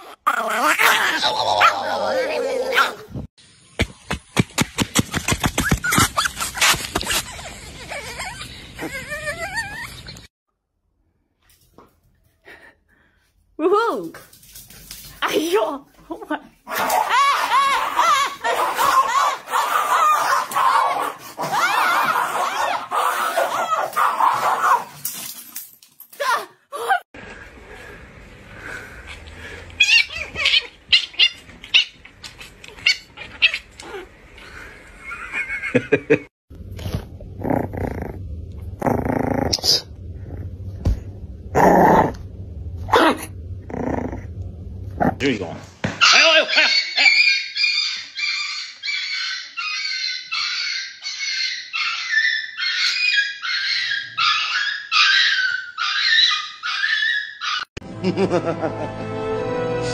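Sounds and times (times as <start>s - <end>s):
puppies squealing and yipping: 5.5s - 10.3s, 16.9s - 24.8s, 29.8s - 33.8s, 46.0s - 57.7s.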